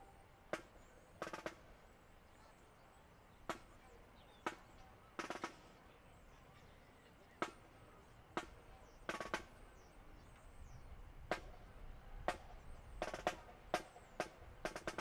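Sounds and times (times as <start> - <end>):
marching drum strokes: 0.0 - 1.8, 3.5 - 5.8, 8.4 - 9.7, 11.3 - 15.0.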